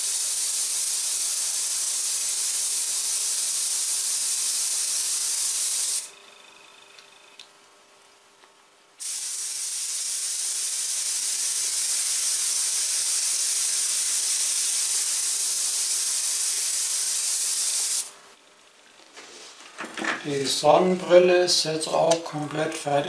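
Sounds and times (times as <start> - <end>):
airbrush hiss of air: 0.0 - 6.1, 9.0 - 18.1.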